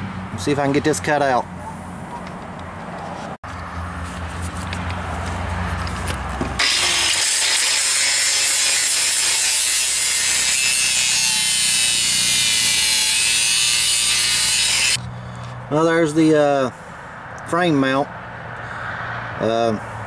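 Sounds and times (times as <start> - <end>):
angle grinder grinding metal: 6.6 - 15.0.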